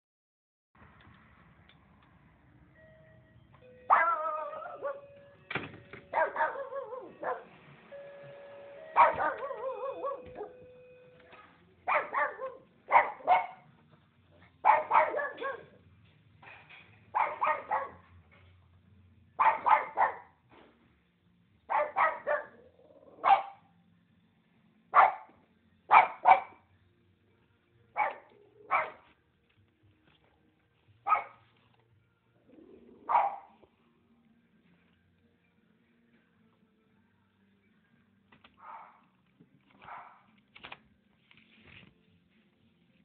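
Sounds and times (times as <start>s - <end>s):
dog barking: 3.9s - 5.1s, 6.1s - 7.5s, 9.0s - 10.6s, 11.8s - 13.7s, 14.6s - 15.8s, 17.1s - 18.1s, 19.4s - 20.3s, 21.7s - 23.7s, 24.9s - 26.6s, 28.0s - 29.1s, 31.0s - 31.5s, 32.8s - 33.6s, 38.6s - 39.0s, 39.8s - 40.3s.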